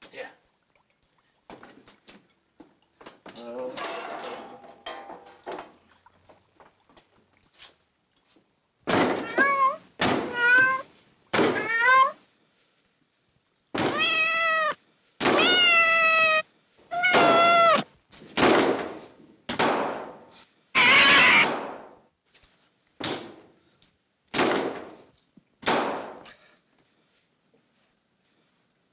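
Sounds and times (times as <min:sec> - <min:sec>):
cat meowing: 0:09.2 - 0:12.2, 0:13.8 - 0:17.9, 0:20.8 - 0:21.5.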